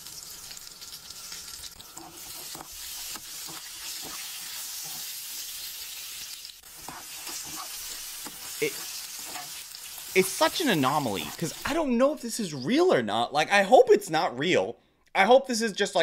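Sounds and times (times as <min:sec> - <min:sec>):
food sizzling in grease: 0:00.0 - 0:12.0.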